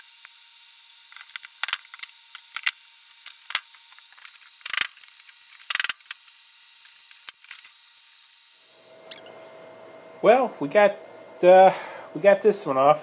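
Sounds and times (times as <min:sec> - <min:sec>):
print peeling with clicks and crackles: 0:01.1 - 0:07.8.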